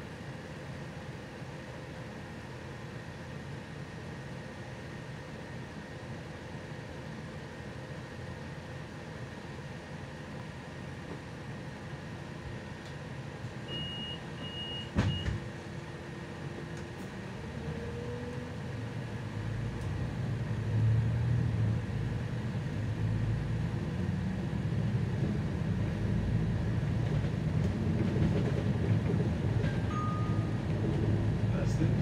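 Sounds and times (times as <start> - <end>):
bus engine rumble: 0.0 - 32.0
short high warning beeps: 13.7 - 15.3
bus doors shutting with thump: 13.8 - 15.8.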